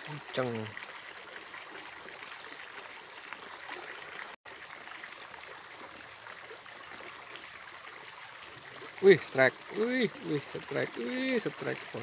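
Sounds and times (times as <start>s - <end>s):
stream flowing over rocks: 0.0s - 12.0s.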